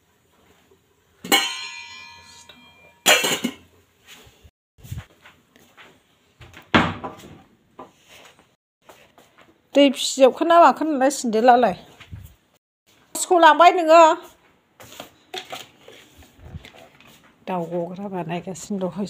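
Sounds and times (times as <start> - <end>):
metal cookware clanging: 1.2 - 3.7
knocks and rustles: 5.8 - 9.6.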